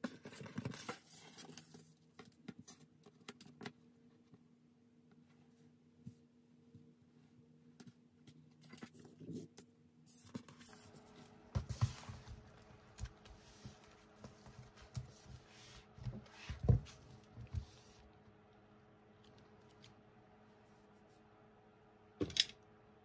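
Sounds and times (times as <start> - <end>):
electric fan humming: 9.8 - 23.0.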